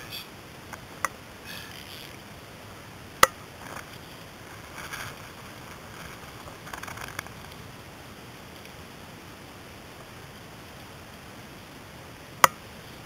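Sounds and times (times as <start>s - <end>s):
steady hiss: 0.0s - 13.0s
soft rustles: 3.6s - 7.7s.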